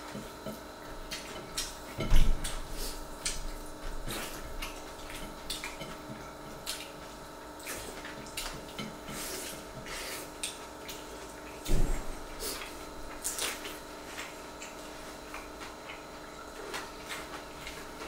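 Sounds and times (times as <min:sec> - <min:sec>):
wet chewing and lip smacks: 0:06.6 - 0:08.7, 0:10.4 - 0:11.6.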